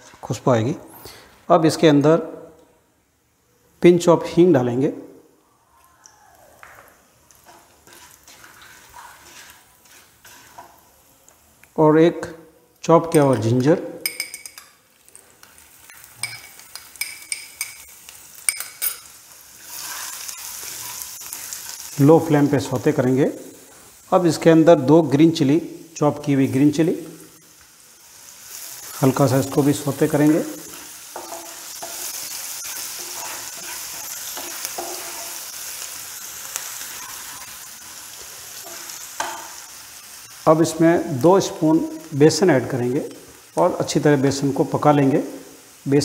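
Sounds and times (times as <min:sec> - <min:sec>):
ginger sizzling in oil: 0:06.4 - 0:11.9, 0:12.8 - 0:46.0
stirring in pan: 0:06.6 - 0:11.8, 0:13.0 - 0:45.8
spatula scraping pan: 0:07.4 - 0:10.8, 0:19.6 - 0:22.1, 0:30.4 - 0:35.6, 0:36.6 - 0:40.5
glass bowl clinking on pan: 0:13.1 - 0:14.8, 0:18.5 - 0:19.1.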